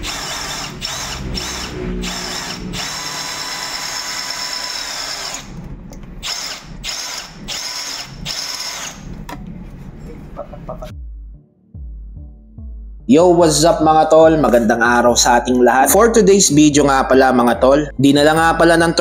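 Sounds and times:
cordless drill cutting metal: 0:00.0 - 0:05.6, 0:06.2 - 0:09.1.

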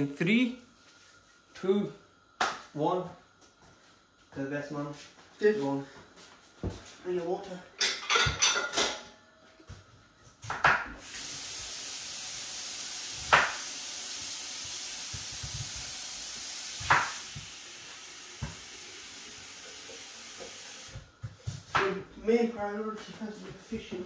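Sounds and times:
kitchenware knocks: 0:07.8 - 0:09.0
steady hiss: 0:10.9 - 0:21.1.

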